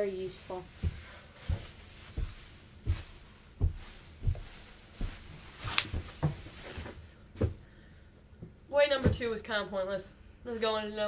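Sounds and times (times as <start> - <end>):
footsteps on bubble wrap: 0.0 - 7.6
bubble wrap crack: 5.6 - 6.1.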